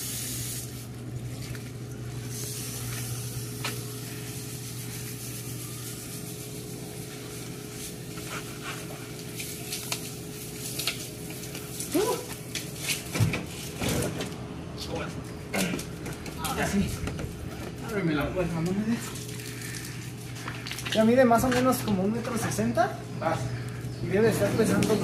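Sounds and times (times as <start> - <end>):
garden hose spraying water: 0.0 - 12.9, 17.8 - 20.4
steady low hum: 0.0 - 25.0
brush scrubbing: 4.9 - 9.9.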